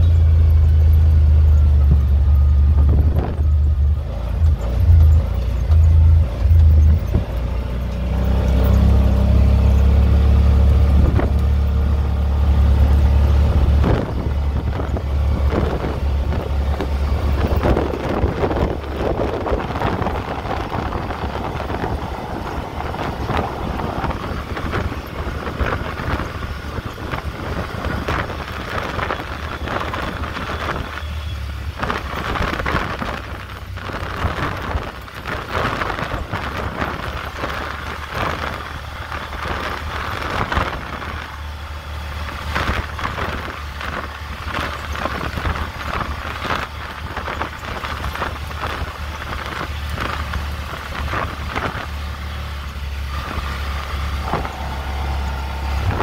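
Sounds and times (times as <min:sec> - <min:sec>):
vehicle knocks and rattles: 0:00.0 - 0:31.1
low engine drone: 0:00.0 - 0:56.0
wind and tyre rushing: 0:00.0 - 0:56.0.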